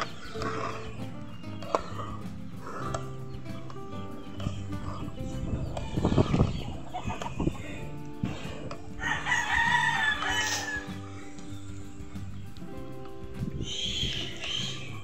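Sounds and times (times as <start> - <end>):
background music: 0.0 - 15.0
rooster crowing: 9.0 - 11.1.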